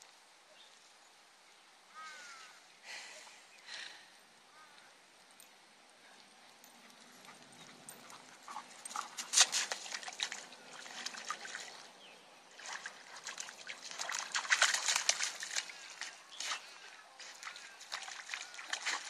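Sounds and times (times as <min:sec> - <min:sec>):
dog paws splashing in puddle: 0:06.2 - 0:19.0.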